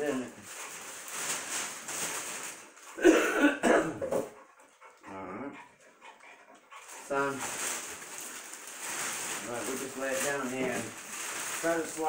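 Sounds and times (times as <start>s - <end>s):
plastic wrapping rustling: 0.0s - 3.5s, 6.7s - 12.0s.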